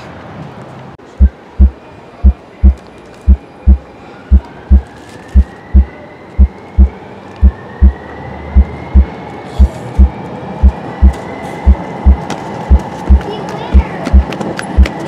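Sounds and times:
heartbeat thumps: 1.2 - 15.0.

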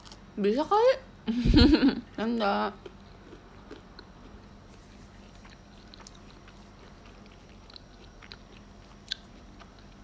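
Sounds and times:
person chewing and eating: 0.0 - 0.3, 2.7 - 10.0
steady low hum: 0.0 - 10.0.

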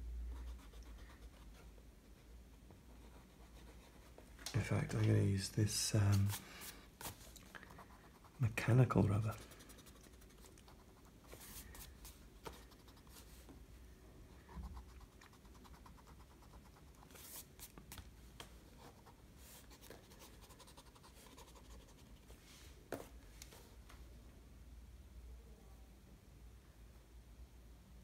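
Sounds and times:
eraser rubbing on paper: 15.7 - 17.7.

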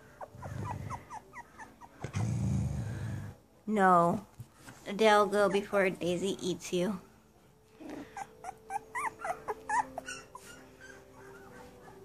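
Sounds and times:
puppies whimpering: 0.0 - 2.4, 7.7 - 12.0.

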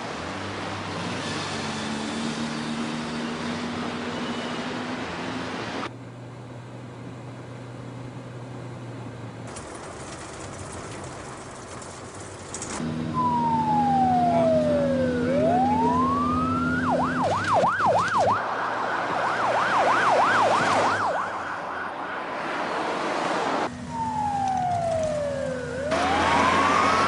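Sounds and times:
vehicle engine and road noise: 0.0 - 27.0
siren wailing and yelping: 13.1 - 22.4, 23.8 - 27.0.

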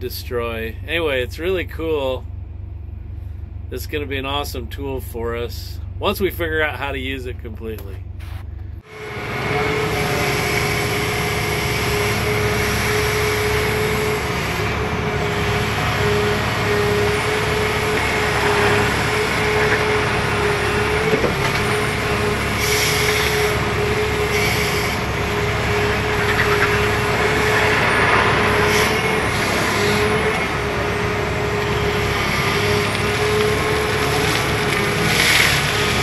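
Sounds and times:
excavator diesel engine under load: 0.0 - 36.0
hydraulic whine: 8.1 - 36.0.

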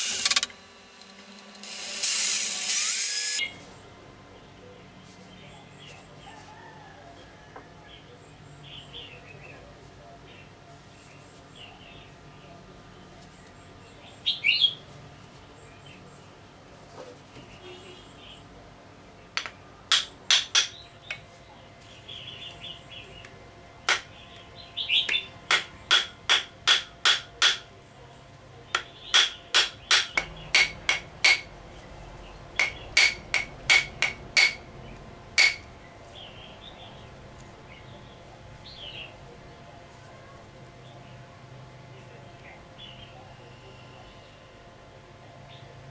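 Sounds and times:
hammer striking knife blade: 29.2 - 31.5, 32.6 - 34.6, 35.4 - 35.6.

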